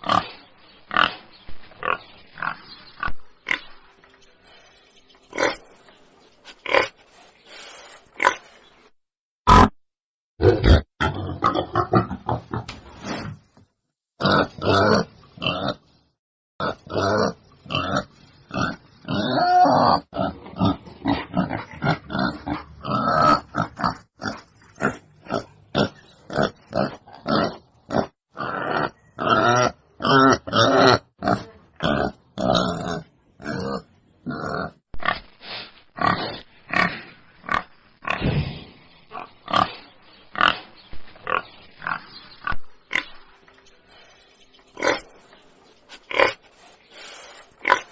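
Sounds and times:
wild boar grunting: 16.6 - 35.3.

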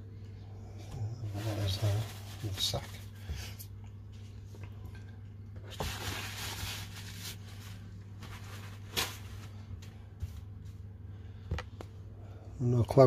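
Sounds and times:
steady low hum: 0.0 - 13.0
rustling handling noise: 1.2 - 4.6, 5.6 - 11.0.

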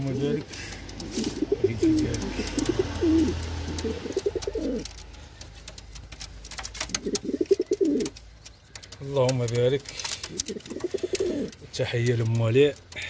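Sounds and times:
pigeons cooing: 0.0 - 5.8, 6.8 - 8.9, 9.9 - 11.6
faint clicks: 0.4 - 13.0.

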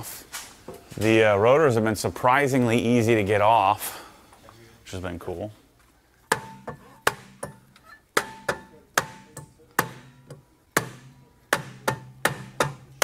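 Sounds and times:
hammer striking brake rotor: 6.3 - 13.0.

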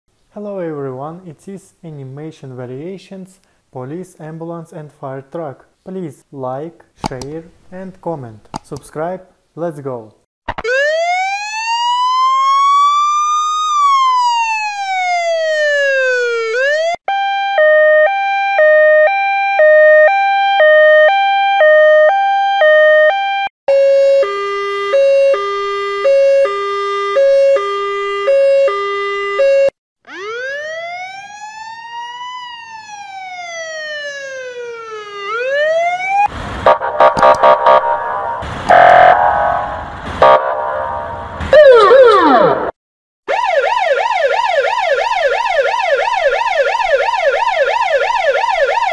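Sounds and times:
siren wailing: 10.6 - 48.9
two-tone hi-lo siren: 10.6 - 48.9
harsh blaring horn: 23.7 - 29.7, 36.7 - 42.7.

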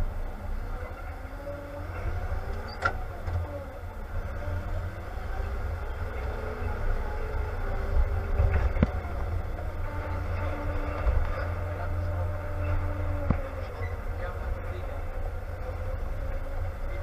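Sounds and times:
tractor diesel engine rumbling: 0.0 - 17.0.

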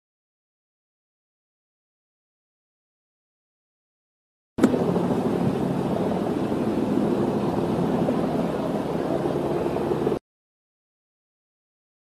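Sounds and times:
engine hum with low drone: 4.6 - 10.2.

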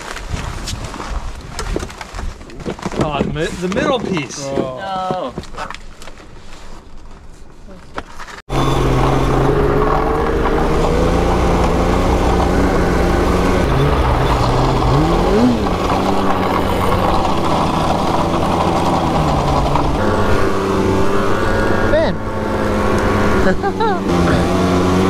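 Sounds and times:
snowmobile engine revving: 8.5 - 25.0.

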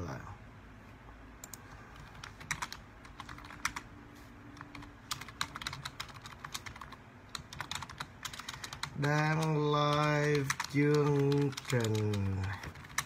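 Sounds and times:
typing on computer keyboard: 1.4 - 3.8, 4.6 - 13.0.

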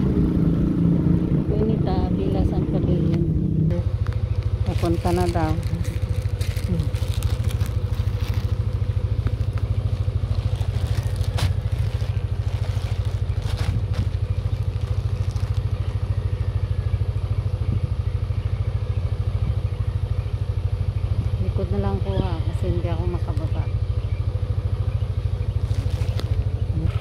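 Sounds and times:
motorcycle engine idling: 0.0 - 27.0
plastic mailer crackling: 4.0 - 16.0, 25.6 - 26.5.

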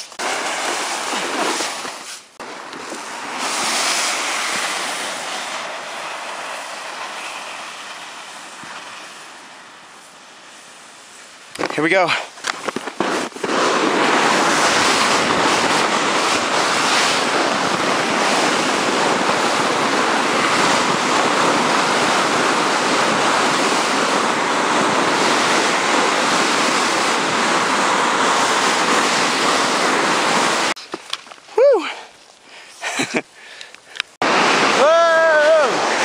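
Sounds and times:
sled rushing over snow: 0.0 - 32.1, 34.2 - 36.0
wind on microphone: 12.6 - 30.8.

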